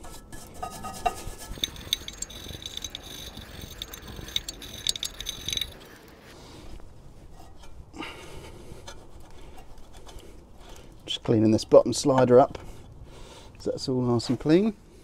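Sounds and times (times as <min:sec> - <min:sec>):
wire brush scrubbing metal: 0:00.5 - 0:06.4.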